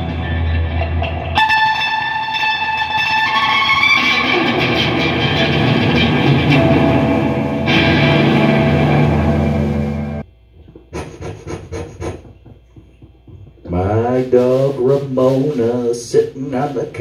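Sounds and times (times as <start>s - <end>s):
electric guitar strummed: 0.0s - 10.3s.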